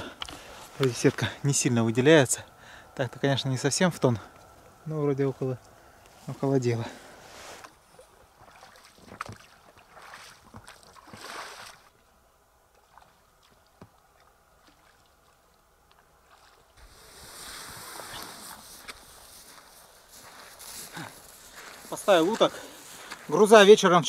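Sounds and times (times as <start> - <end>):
inflatable boat dragged through grass: 16.8 - 22.3
rustling: 16.8 - 23.3.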